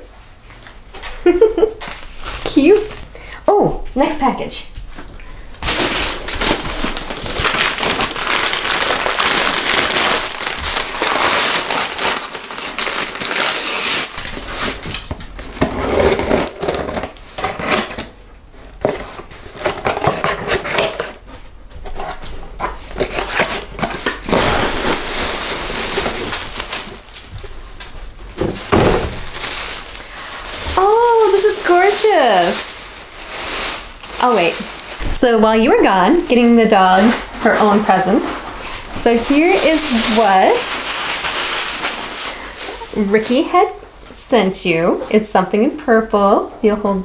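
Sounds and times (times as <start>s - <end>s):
plastic bag crinkling: 1.2s - 3.4s, 5.3s - 43.7s
packing tape scraping: 5.6s - 21.2s, 21.8s - 43.1s.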